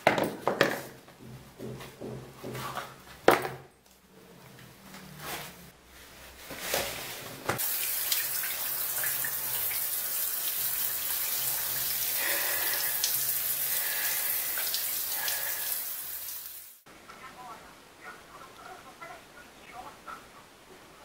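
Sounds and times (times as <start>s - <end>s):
shower water spraying: 7.6s - 16.8s.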